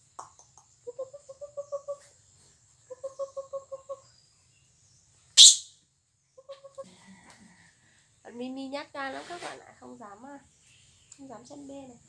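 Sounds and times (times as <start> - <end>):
baby monkey squeaking cry: 5.4 - 5.7.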